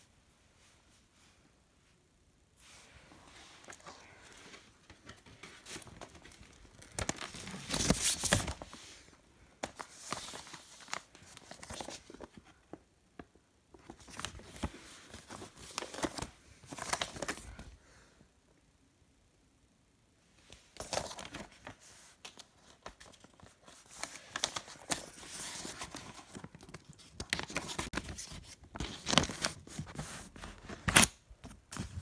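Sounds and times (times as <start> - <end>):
paper sleeve rustling: 2.7 - 9.0, 13.9 - 17.6.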